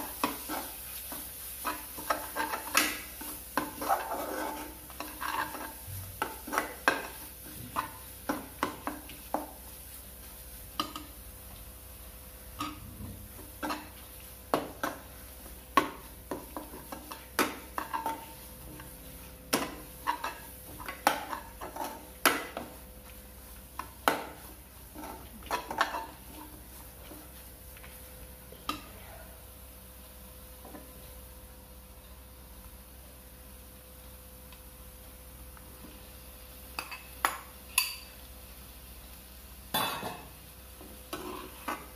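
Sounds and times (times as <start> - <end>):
ladle scraping and clinking in pan: 41.1 - 41.9.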